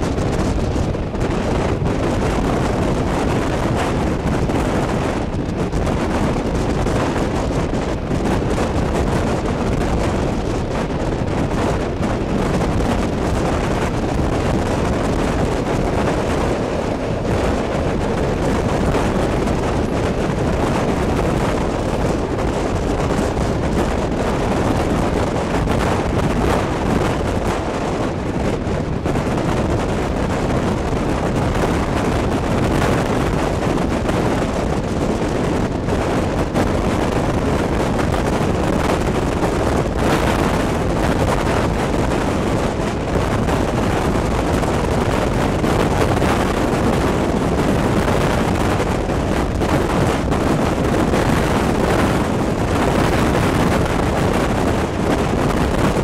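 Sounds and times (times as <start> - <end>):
passenger train running: 0.0 - 56.0
wind buffeting microphone: 0.0 - 56.0.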